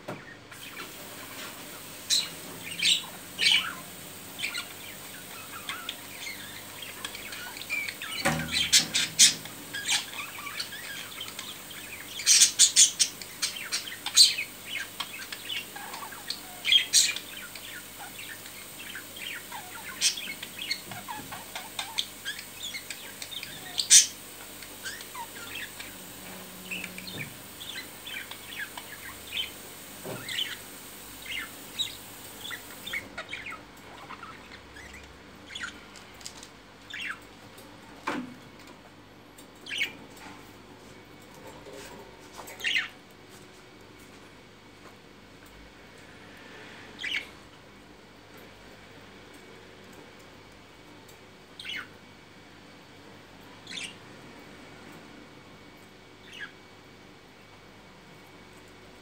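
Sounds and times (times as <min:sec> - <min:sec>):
budgerigars chirping: 0:02.1 - 0:26.1, 0:26.7 - 0:30.6, 0:31.2 - 0:35.8, 0:47.0 - 0:47.2, 0:51.6 - 0:51.9, 0:53.7 - 0:54.0.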